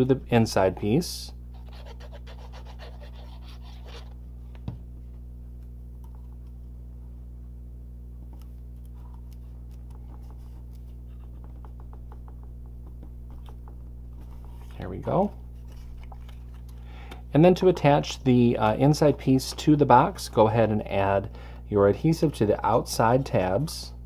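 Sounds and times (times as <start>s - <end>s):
low hum: 0.0s - 24.0s
cardstock rustling and rubbing: 1.5s - 4.2s, 14.2s - 16.7s.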